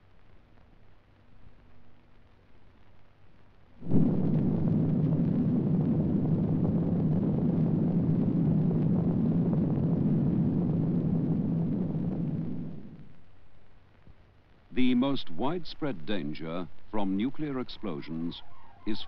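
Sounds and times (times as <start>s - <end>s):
explosion blast: 3.8s - 13.1s
low rumble: 3.8s - 13.8s.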